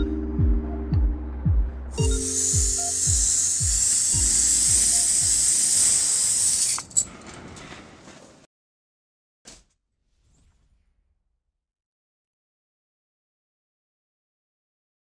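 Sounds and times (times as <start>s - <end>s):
electronic music with thudding drums: 0.0s - 5.6s.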